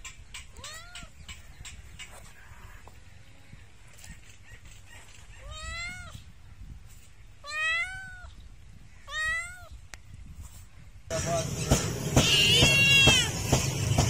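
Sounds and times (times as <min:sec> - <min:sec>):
cat meowing: 0:00.6 - 0:01.1, 0:05.4 - 0:06.2, 0:07.4 - 0:08.3, 0:09.0 - 0:09.8, 0:12.2 - 0:13.3.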